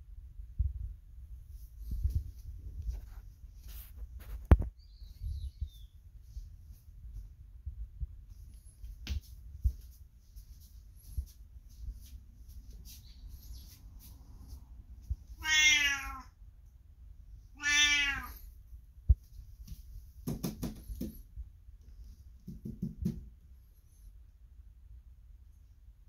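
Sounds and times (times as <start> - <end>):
cat meowing: 15.4 - 16.4, 17.5 - 18.5.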